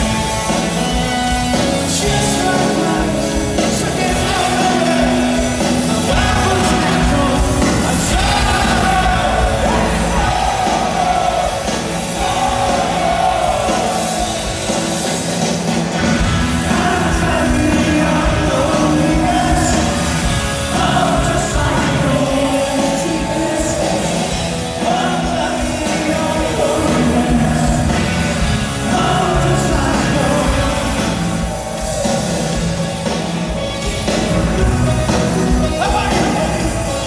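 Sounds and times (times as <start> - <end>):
rock band playing live: 0.0 - 37.0
person singing: 1.6 - 14.5, 16.5 - 31.8.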